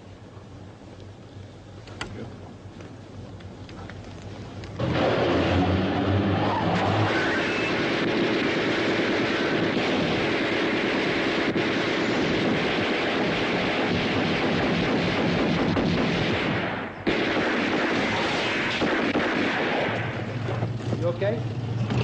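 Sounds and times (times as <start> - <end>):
gunfire and blasts: 7.1 - 20.7.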